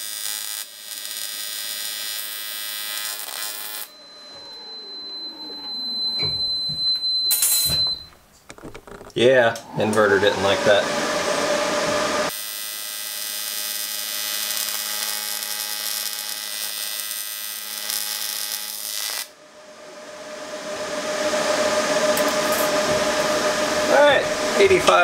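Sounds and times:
welding arc buzzing and hissing: 0.0s - 4.8s, 7.3s - 7.8s, 12.2s - 19.4s
welder fan noise: 0.0s - 7.8s, 9.6s - 25.0s.

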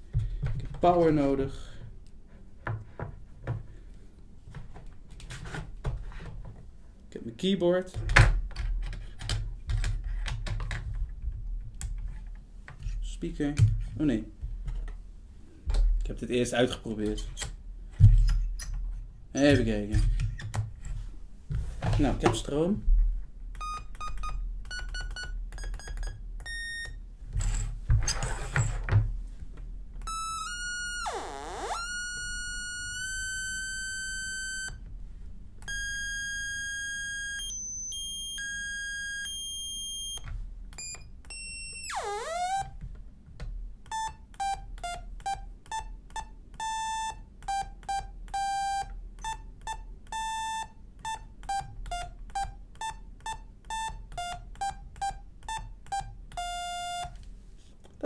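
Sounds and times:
synth electronic tones: 30.0s - 34.8s.

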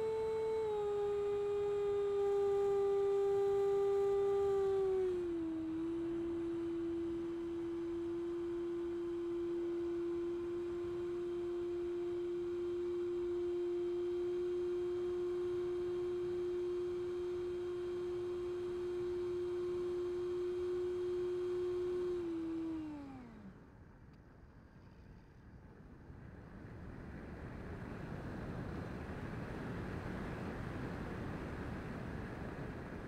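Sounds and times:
faint hiss: 0.0s - 23.8s
electric ducted fan whining: 0.0s - 24.1s, 26.8s - 33.0s.

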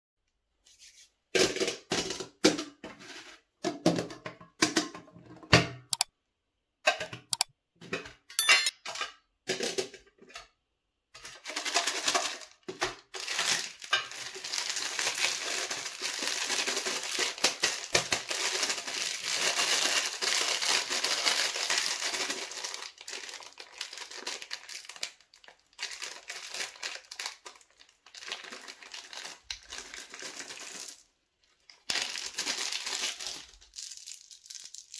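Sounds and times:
wrapper tearing: 11.5s - 31.1s, 31.8s - 34.9s
plastic wrapper crinkling: 11.5s - 34.9s.

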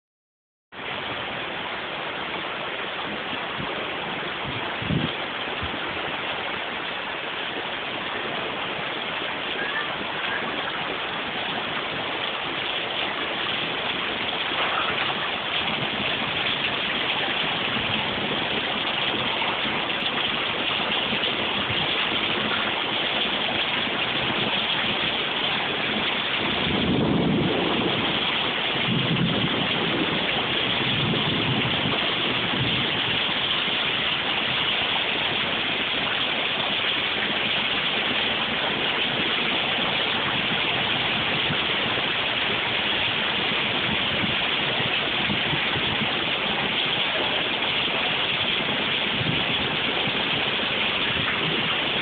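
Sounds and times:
rain falling: 0.7s - 52.0s.

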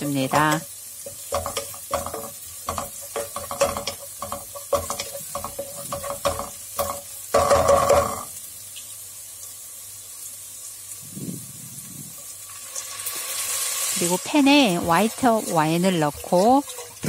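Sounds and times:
food sizzling in butter: 0.0s - 17.0s
wooden spatula scraping a pan: 0.1s - 8.4s, 14.4s - 17.0s.

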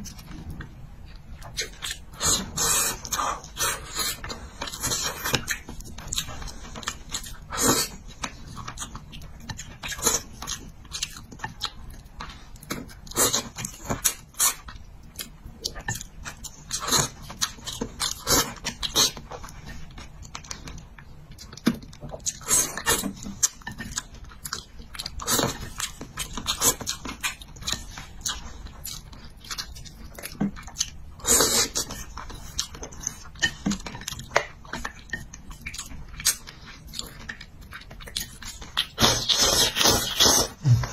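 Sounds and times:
slurping food: 39.0s - 40.9s.

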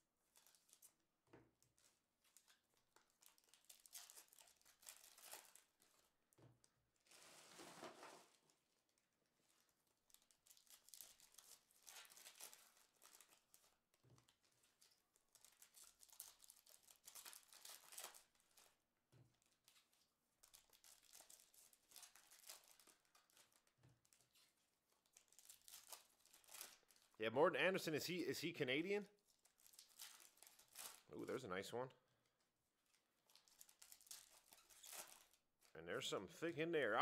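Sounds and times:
foil wrapper crinkling and tearing: 0.3s - 1.0s, 1.6s - 6.1s, 9.6s - 18.8s, 19.4s - 27.2s, 29.2s - 31.1s, 32.8s - 35.7s.

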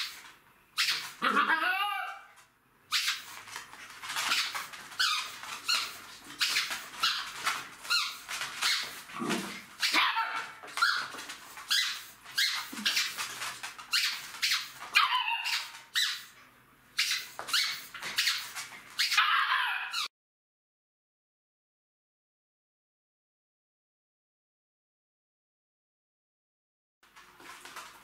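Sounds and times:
puppies yipping and barking: 2.9s - 16.4s, 17.0s - 20.1s.

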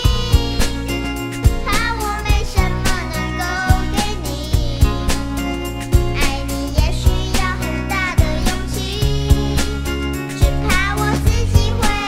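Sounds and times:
steady drum beat: 0.0s - 3.1s, 4.6s - 6.2s.

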